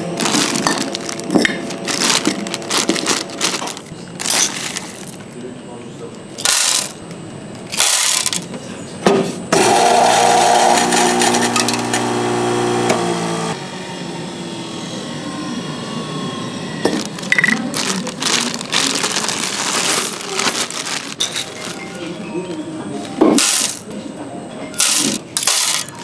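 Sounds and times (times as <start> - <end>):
small electric motor grinding: 9.6 - 13.6.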